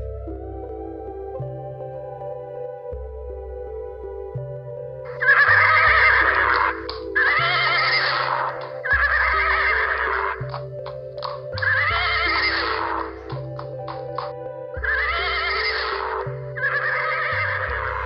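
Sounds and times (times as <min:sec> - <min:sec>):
soft synthesizer music: 0:00.0 - 0:18.0
horse whinnying: 0:05.2 - 0:10.6, 0:11.6 - 0:13.2, 0:14.8 - 0:18.0.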